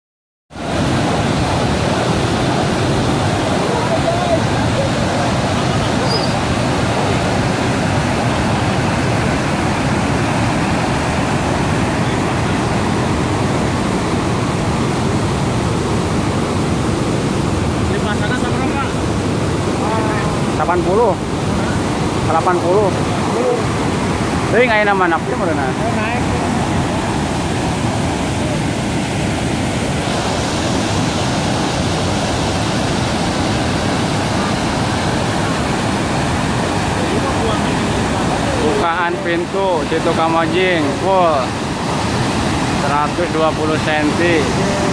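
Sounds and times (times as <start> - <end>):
floodwater rushing: 0.6 - 44.9.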